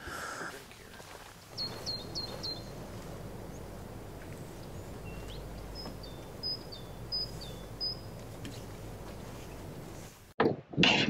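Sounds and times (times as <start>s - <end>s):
steady low rush: 0.5s - 10.3s
small bird's high calls: 1.5s - 10.0s.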